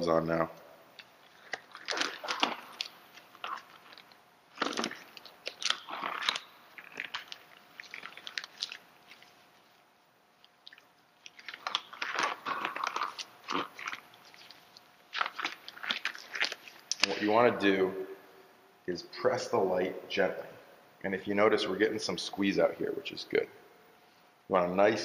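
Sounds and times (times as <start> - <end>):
latex gloves crinkling: 1.0 - 17.6.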